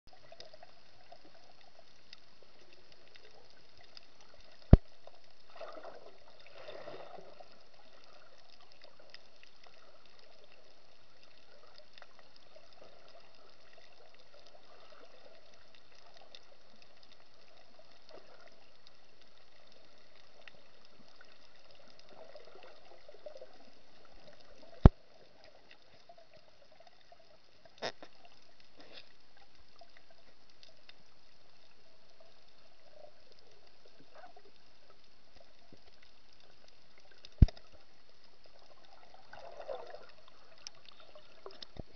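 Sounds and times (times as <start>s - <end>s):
muffled underwater hiss: 0.1s - 41.9s
water gurgling and bubbling: 4.6s - 9.1s, 38.4s - 41.9s.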